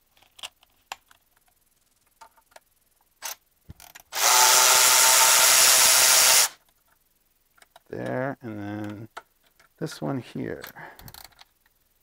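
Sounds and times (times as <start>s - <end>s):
cordless electric ratchet running: 4.1s - 6.6s.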